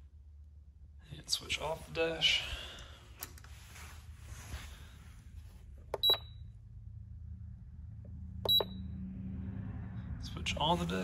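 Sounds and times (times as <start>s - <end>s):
short high beeps: 8.5s - 8.8s.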